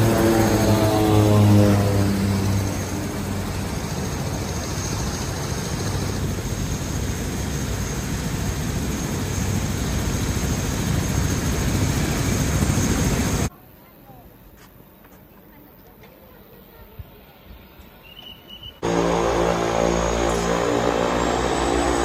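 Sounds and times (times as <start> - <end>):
aircraft engine passing: 0.0 - 13.5, 18.8 - 22.0.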